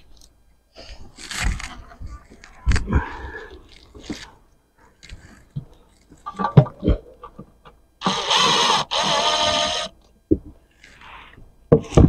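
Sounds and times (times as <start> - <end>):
cordless power tool whine: 8.0 - 10.0.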